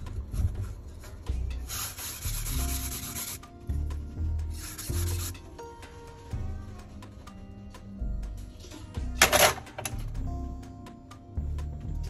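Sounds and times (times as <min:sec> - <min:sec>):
blade scraping on whetstone: 0:01.6 - 0:03.4, 0:04.6 - 0:05.5.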